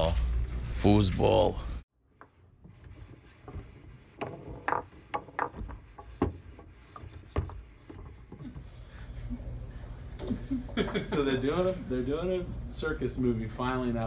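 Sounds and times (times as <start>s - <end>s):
foosball ball clacking: 4.2s - 6.4s.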